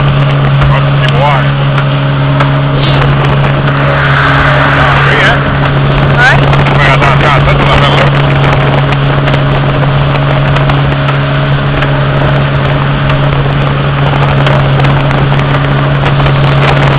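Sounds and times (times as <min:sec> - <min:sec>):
motorboat engine droning: 0:00.0 - 0:16.9
rushing wind and water: 0:00.0 - 0:16.9.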